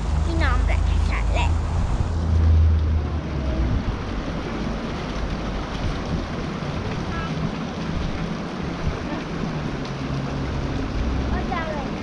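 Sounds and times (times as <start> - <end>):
creek water rushing: 0.0 - 12.0
wind rumbling on microphone: 0.0 - 12.0.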